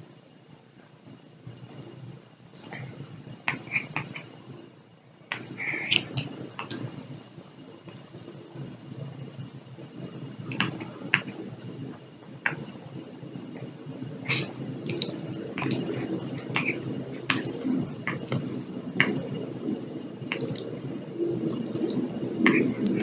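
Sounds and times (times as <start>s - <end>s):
puppies mouthing and chewing: 14.2s - 19.2s, 20.2s - 20.8s, 21.4s - 23.0s.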